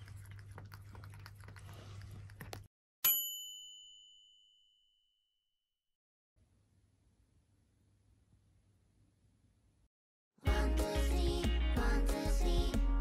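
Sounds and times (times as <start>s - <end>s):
cat lapping water: 0.0s - 2.7s.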